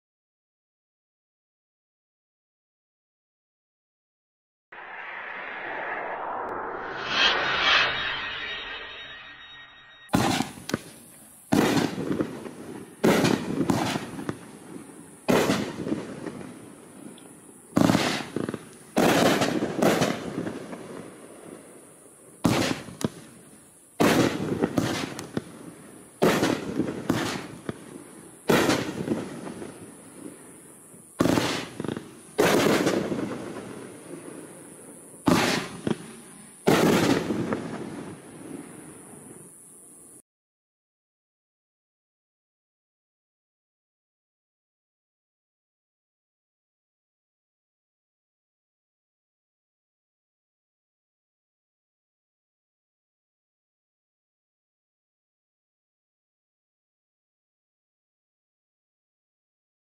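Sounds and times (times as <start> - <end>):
fireworks bursting: 4.8 - 39.5.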